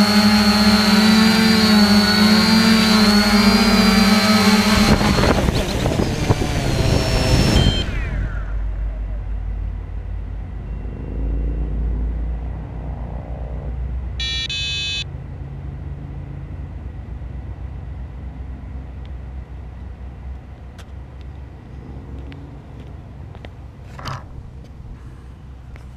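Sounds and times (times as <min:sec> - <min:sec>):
vehicle passing rumble: 0:01.7 - 0:25.9
two-part electronic beep: 0:06.9 - 0:08.2, 0:14.2 - 0:15.1.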